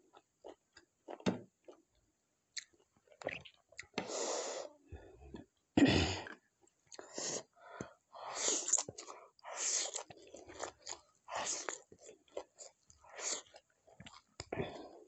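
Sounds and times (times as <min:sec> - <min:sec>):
chewing and crunching: 0:09.8 - 0:15.0.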